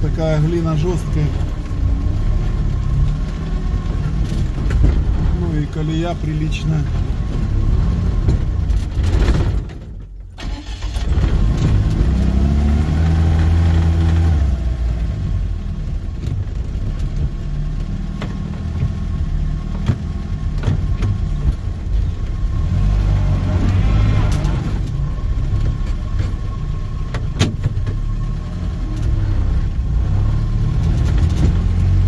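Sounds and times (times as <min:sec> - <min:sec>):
off-road vehicle engine revving: 0:10.4 - 0:15.4, 0:22.0 - 0:26.5, 0:27.4 - 0:32.0.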